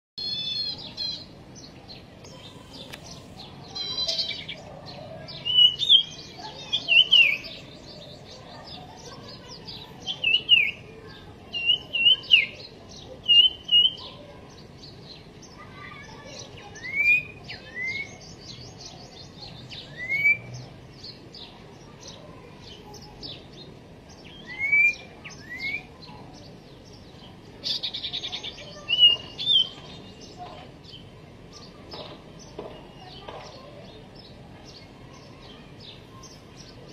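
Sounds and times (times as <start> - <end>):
bird singing whistled notes: 0.2 - 1.7, 2.3 - 4.6, 5.3 - 8.3, 11.5 - 14.1, 16.4 - 21.2, 24.1 - 26.0, 27.7 - 30.4
bird buzzy chatter: 0.2 - 36.9.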